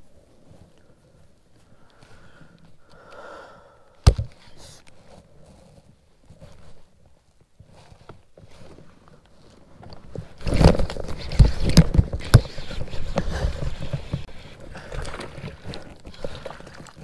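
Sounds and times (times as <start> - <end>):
microphone handling rustling: 4.1 - 17.0.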